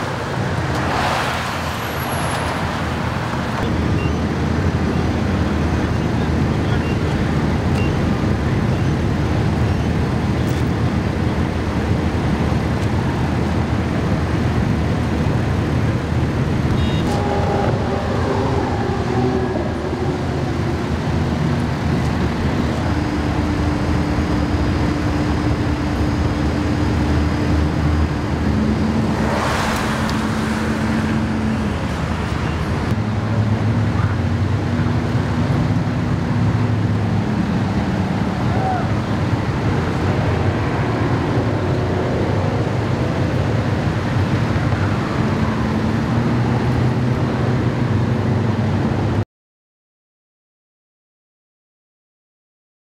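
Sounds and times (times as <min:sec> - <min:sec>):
passing vehicle: 0:00.0 - 0:49.2
diesel engines idling: 0:01.6 - 0:47.2.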